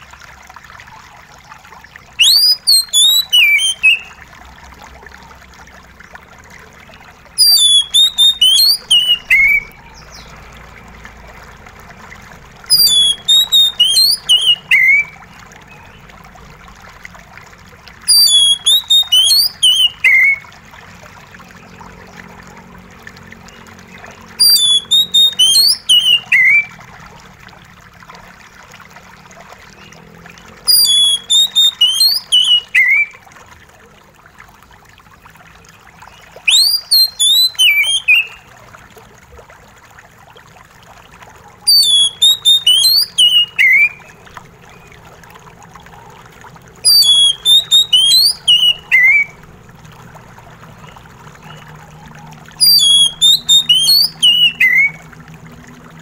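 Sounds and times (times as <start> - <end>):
water trickling: 0.0 - 56.0
bird singing whistled phrase: 2.2 - 4.2, 7.4 - 10.3, 12.7 - 15.9, 18.1 - 20.4, 24.4 - 26.7, 30.7 - 33.1, 36.5 - 38.4, 41.7 - 44.1, 46.8 - 49.4, 52.6 - 55.0.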